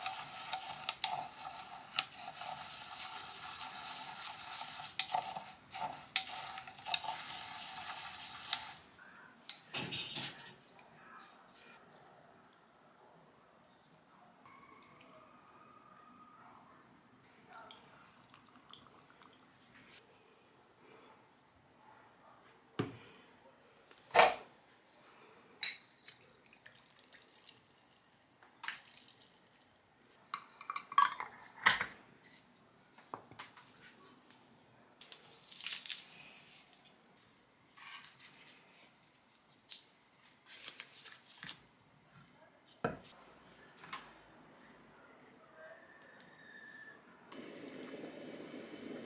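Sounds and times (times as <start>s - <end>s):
glass jar and spoon clinking: 25.6s - 26.3s.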